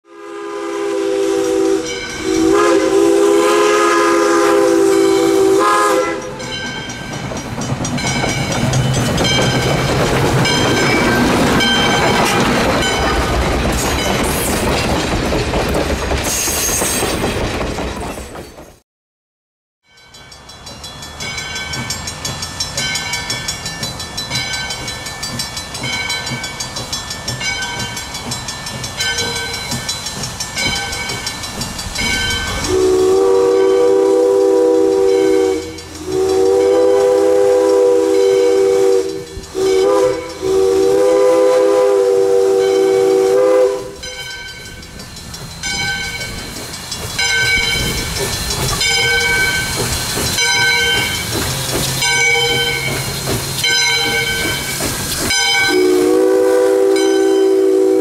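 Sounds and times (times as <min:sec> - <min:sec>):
steam whistle blasts: 0:00.0 - 0:06.6, 0:32.2 - 0:44.1, 0:55.3 - 0:58.0
steam hissing: 0:00.3 - 0:15.2, 0:20.8 - 0:58.0
locomotive bell ringing: 0:01.3 - 0:03.3, 0:04.0 - 0:18.8, 0:19.8 - 0:41.3, 0:42.4 - 0:58.0.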